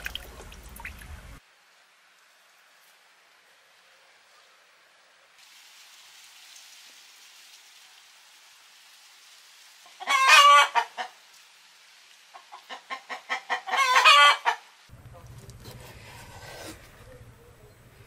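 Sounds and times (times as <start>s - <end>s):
hen cackling and squawking: 9.8s - 11.2s, 12.3s - 14.7s.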